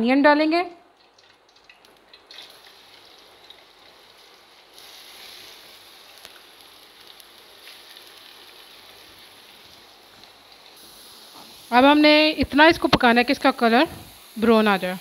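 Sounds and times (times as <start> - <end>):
small crackles: 1.0 - 11.6
onions sizzling in hot oil: 2.2 - 15.0.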